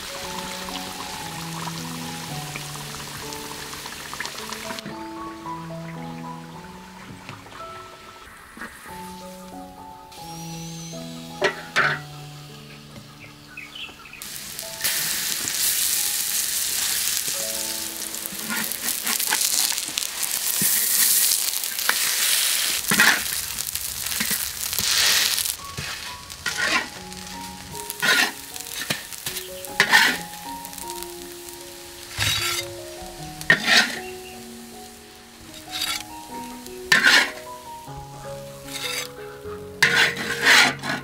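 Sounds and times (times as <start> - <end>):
batter sizzling in hot oil: 0.0 - 41.0
metal spatula scraping a wok: 10.4 - 12.1, 18.3 - 19.8, 21.8 - 23.4, 24.2 - 27.1, 28.0 - 30.3, 32.1 - 32.7, 33.4 - 34.1, 35.5 - 36.2, 36.9 - 37.5, 38.6 - 39.2, 39.8 - 41.0.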